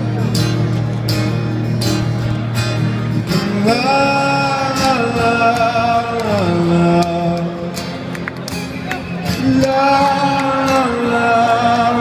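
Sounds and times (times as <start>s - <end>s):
strummed acoustic guitar: 0.0s - 12.0s
man singing wordless melody: 3.3s - 7.8s, 9.3s - 12.0s.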